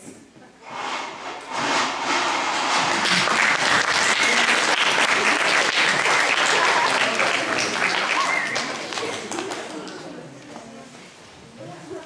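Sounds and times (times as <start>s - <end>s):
audience applauding: 2.1s - 10.0s.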